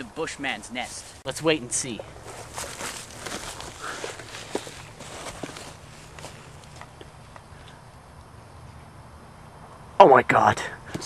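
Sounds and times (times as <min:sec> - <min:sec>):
footsteps in dry brush: 0:02.1 - 0:07.0
crackles in dry brush: 0:02.2 - 0:07.7.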